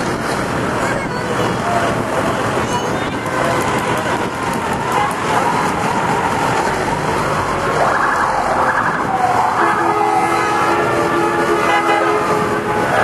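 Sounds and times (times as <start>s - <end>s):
rumble of passing trucks: 0.0s - 13.0s
emergency siren wailing: 5.3s - 13.0s
air horn chord: 9.6s - 12.7s.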